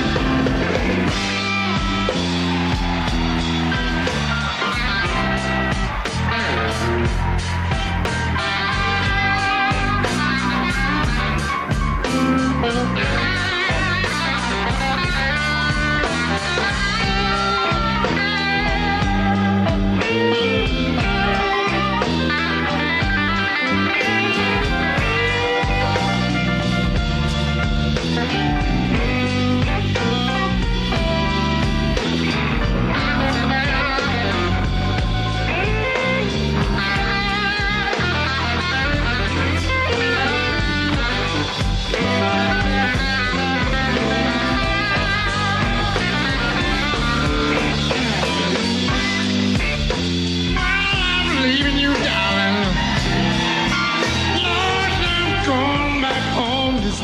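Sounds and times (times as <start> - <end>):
drum hits: 0.0 - 12.0
blues band playing: 0.0 - 57.0
electric guitar lead: 0.0 - 57.0.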